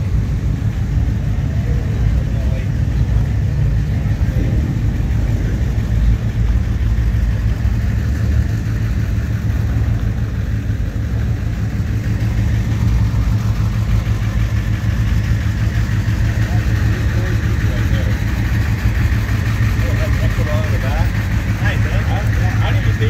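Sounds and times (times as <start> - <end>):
car engines idling: 0.0 - 23.0.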